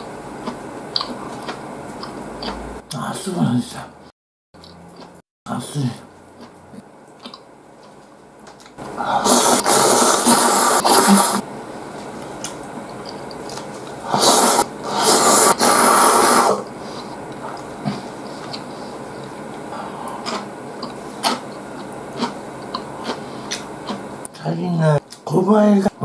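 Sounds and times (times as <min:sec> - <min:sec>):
person slurping noodles: 0:09.0 - 0:11.4, 0:14.0 - 0:16.7.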